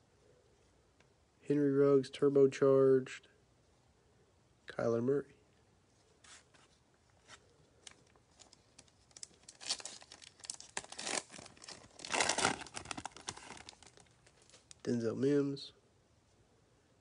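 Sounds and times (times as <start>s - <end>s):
foil wrapper rustling: 7.3s - 14.8s
foil wrapper crinkling and tearing: 7.8s - 14.8s.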